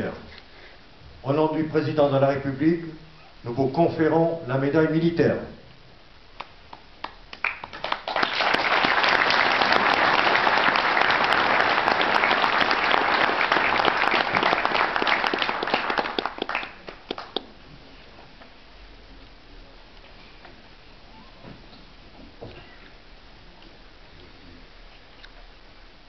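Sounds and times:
audience applauding: 6.4 - 17.5.

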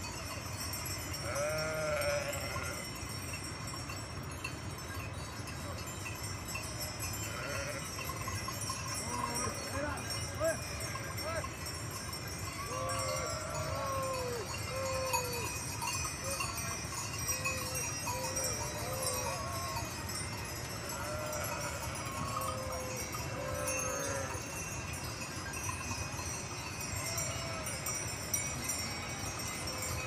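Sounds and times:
bells ringing: 0.0 - 30.0
sheep bleating: 1.3 - 2.8, 7.3 - 7.9, 21.0 - 24.4.

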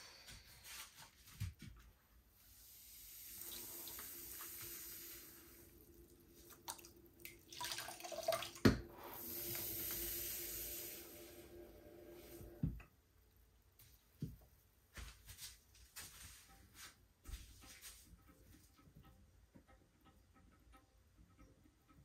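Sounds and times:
low steady hum: 2.3 - 13.6
water running from a tap: 2.6 - 11.6.

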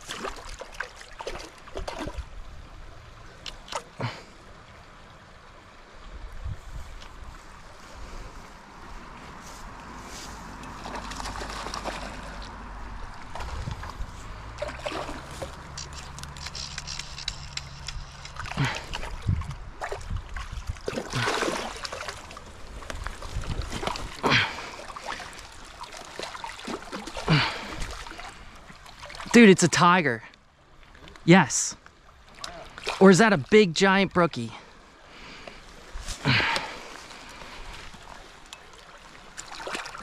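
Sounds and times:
creek water running: 0.0 - 40.0
fish splashing at surface: 10.7 - 12.5, 14.6 - 19.2.

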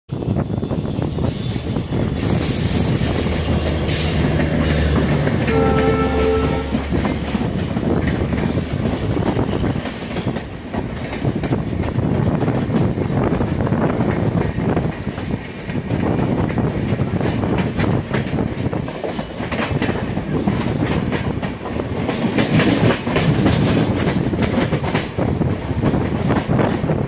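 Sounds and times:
train rushing past: 0.1 - 27.0
locomotive horn blast: 5.4 - 7.1
wheels clattering over rail joints: 15.2 - 26.8.

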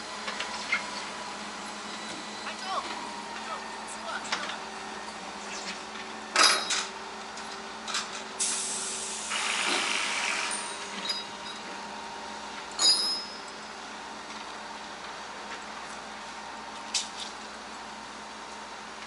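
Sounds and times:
sharp metallic clanks: 6.4 - 6.9
hiss: 8.4 - 10.4.

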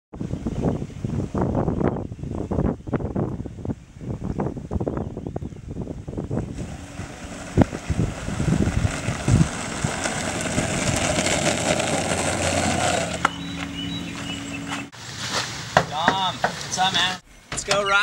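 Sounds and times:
skateboard wheels rolling on asphalt: 5.8 - 15.8.

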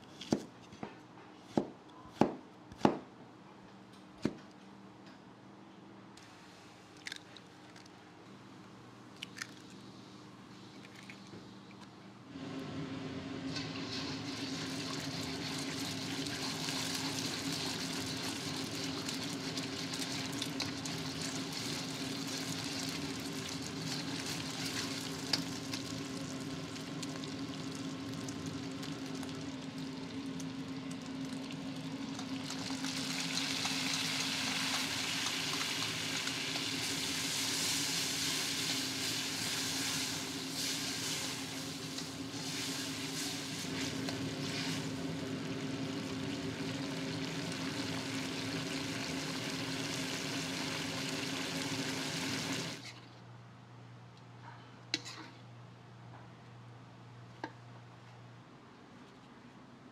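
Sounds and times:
eggs sizzling in oil: 13.5 - 52.9.

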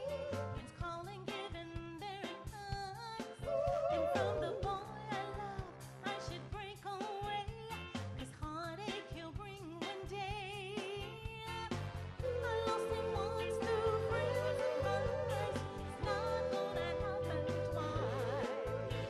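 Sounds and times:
women singing: 0.0 - 7.6, 12.2 - 19.0
band with drums and keyboards: 0.0 - 19.0.

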